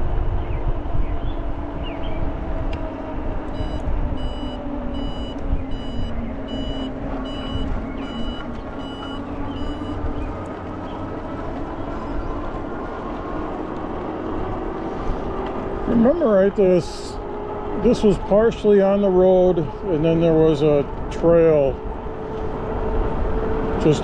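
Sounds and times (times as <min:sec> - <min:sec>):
low riding rumble: 0:00.0 - 0:24.0
high electronic beep: 0:03.6 - 0:10.0.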